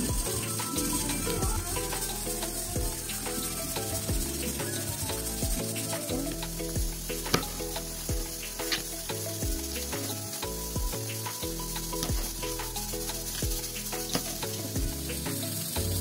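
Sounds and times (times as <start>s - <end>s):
background music: 0.0s - 16.0s
steady hiss: 0.0s - 16.0s.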